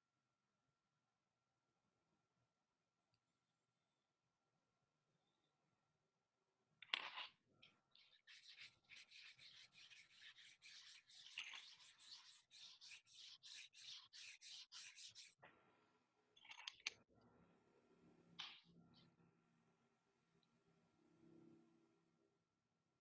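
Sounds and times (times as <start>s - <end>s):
drawing stick scratching paper: 8.0s - 15.4s.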